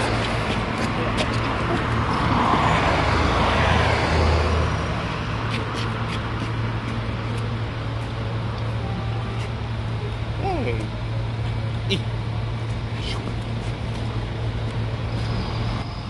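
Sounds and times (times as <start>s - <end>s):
vehicle passing: 0.0s - 8.0s
low engine hum: 0.0s - 16.0s.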